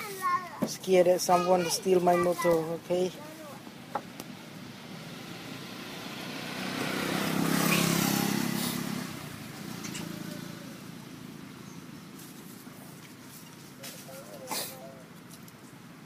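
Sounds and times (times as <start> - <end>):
motor vehicle driving past: 3.7 - 13.0.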